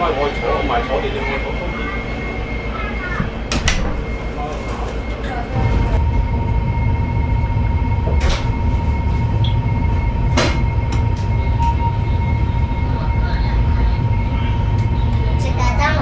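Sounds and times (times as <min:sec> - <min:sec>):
train cabin low rumble: 0:00.0 - 0:16.0.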